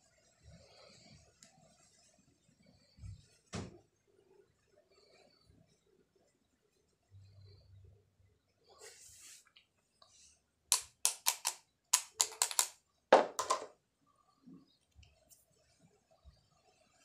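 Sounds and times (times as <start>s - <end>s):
screwdriver clicking on ball bearing: 10.7s - 12.7s.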